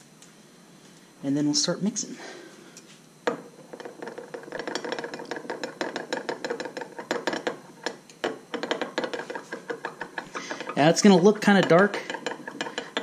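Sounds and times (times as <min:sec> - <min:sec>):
metal rod scraping glass cup: 0:03.7 - 0:13.0.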